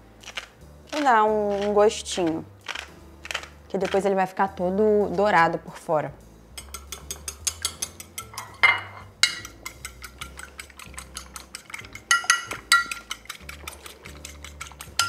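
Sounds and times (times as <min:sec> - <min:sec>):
egg beaten clinking against bowl: 0:06.6 - 0:15.0.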